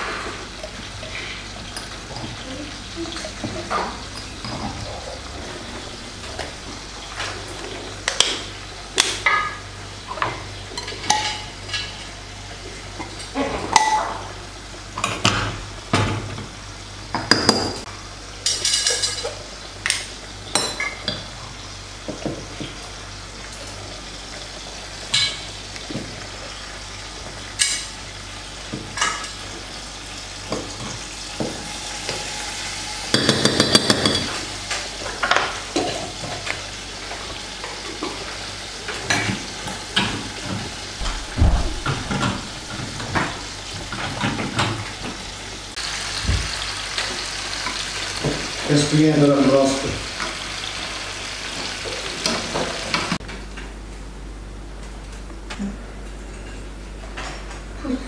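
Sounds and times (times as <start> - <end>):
spoon clinking on glass jar: 33.2 - 34.4.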